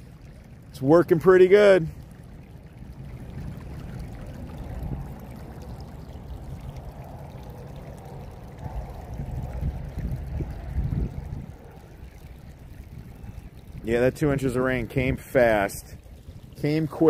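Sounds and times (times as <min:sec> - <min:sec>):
water pouring down a drain channel: 0:00.0 - 0:17.0.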